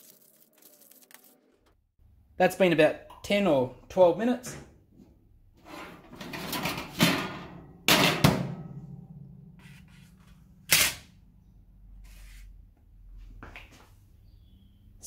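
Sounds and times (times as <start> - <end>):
metal tray clattering and knocking: 5.8 - 9.6.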